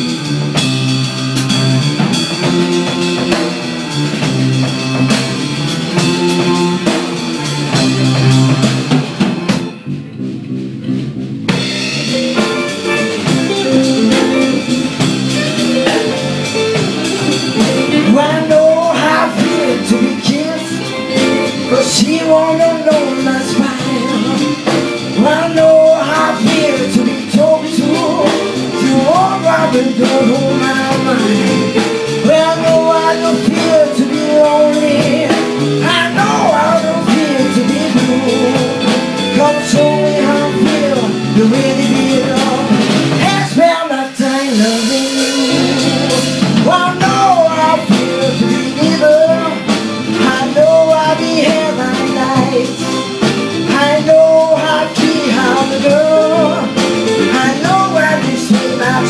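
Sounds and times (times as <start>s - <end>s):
live band playing: 0.0s - 59.0s
woman singing into microphone: 17.4s - 53.0s, 53.6s - 59.0s.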